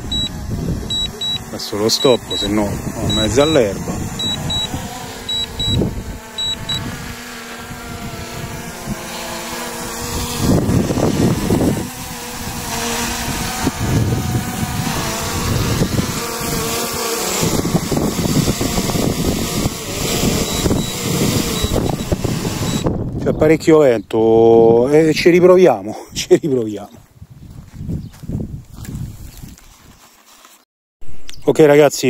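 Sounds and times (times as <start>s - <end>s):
short high beeps: 0.0s - 0.3s, 0.9s - 1.4s, 3.1s - 3.5s, 4.2s - 5.8s, 6.4s - 6.8s, 21.6s - 22.1s
wind buffeting microphone: 0.0s - 1.5s, 2.2s - 25.3s, 27.0s - 30.0s
drone propellers humming: 0.0s - 23.2s.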